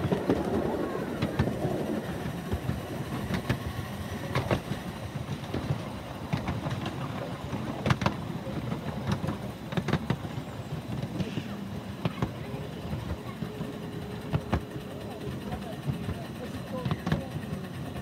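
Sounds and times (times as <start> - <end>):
miniature train wheels rumbling on rail: 0.0 - 18.0
sharp clicks and knocks: 4.3 - 10.3.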